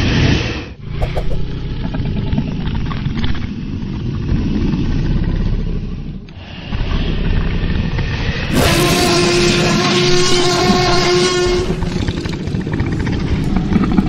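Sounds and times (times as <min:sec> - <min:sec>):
deep rumbling dinosaur growl: 0:01.0 - 0:08.6.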